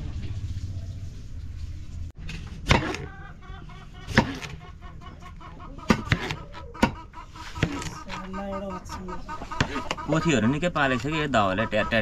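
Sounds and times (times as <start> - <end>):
hen cackling: 2.8 - 12.0.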